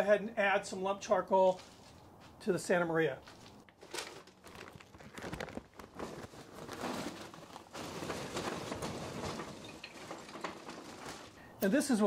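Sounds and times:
paper bag rustling: 1.5 - 2.1, 3.2 - 11.5
charcoal clattering on brick: 3.7 - 11.4.

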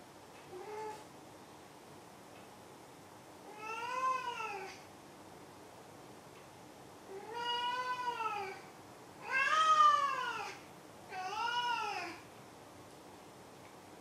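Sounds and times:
cat meowing: 7.1 - 8.6, 9.2 - 12.2.

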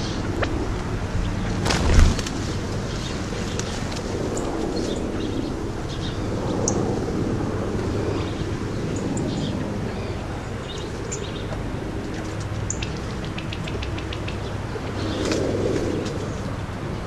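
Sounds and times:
steady low rumble: 0.0 - 17.0
quail clicks and notes: 11.1 - 16.3.

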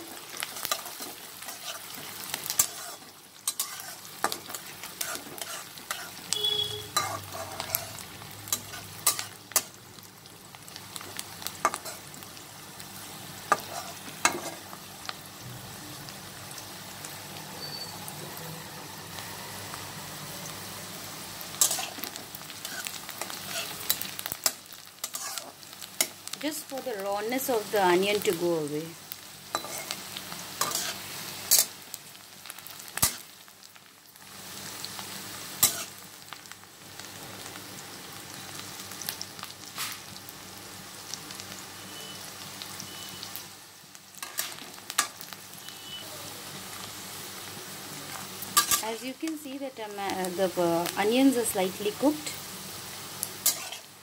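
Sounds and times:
onions sizzling in oil: 0.0 - 54.0
spatula scraping pan: 0.5 - 6.2, 6.9 - 9.7, 13.5 - 14.6, 21.6 - 24.1, 25.0 - 25.6, 29.5 - 30.0, 30.6 - 31.7, 53.4 - 53.9.

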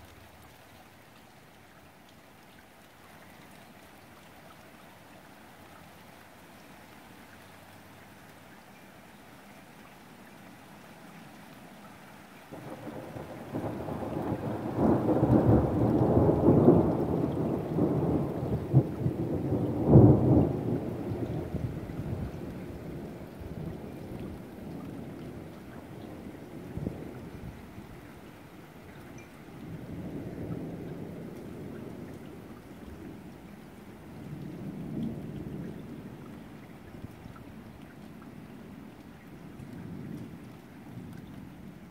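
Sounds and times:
steady rain: 0.0 - 41.9
thunder rolling: 12.5 - 28.0.

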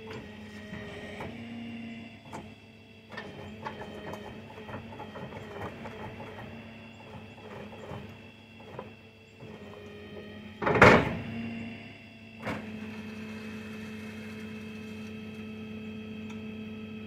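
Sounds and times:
mechanical whir with ticks: 0.0 - 17.0
loud scrape of load shifting: 12.4 - 15.4.

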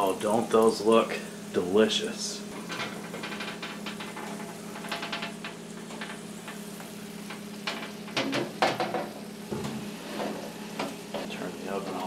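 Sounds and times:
sausages sizzling and popping: 0.0 - 12.0.

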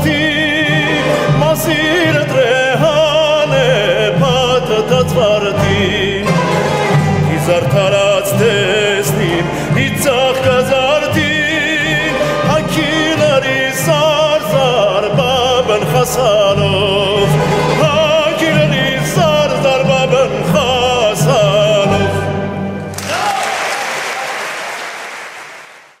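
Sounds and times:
folk orchestra playing: 0.0 - 23.3
man singing with vibrato: 0.0 - 23.5
audience applause: 22.9 - 26.0.

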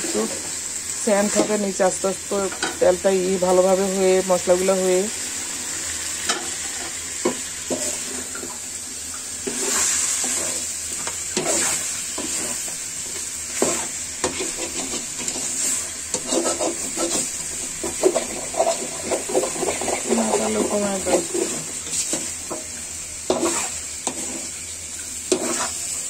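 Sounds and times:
meat sizzling in oil: 0.0 - 26.0
metal spoon scraping a pan: 9.4 - 22.6, 23.3 - 24.6, 25.2 - 26.0.

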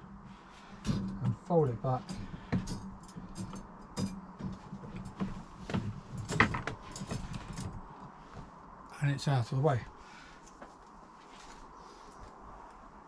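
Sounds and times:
dog gate clicking and rattling: 2.0 - 5.2, 6.1 - 7.8.

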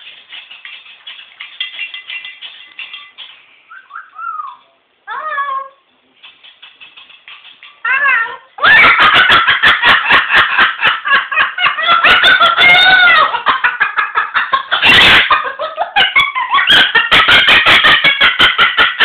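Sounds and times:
cockatoo cackling: 7.7 - 19.0.

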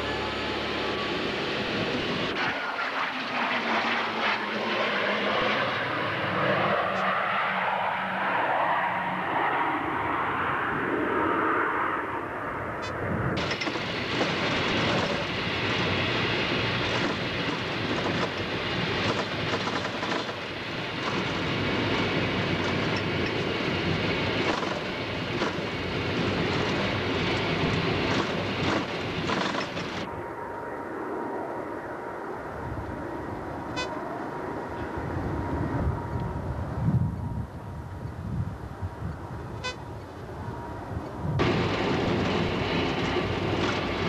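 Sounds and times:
jet cockpit rushing noise: 13.3 - 30.1, 41.4 - 44.0.

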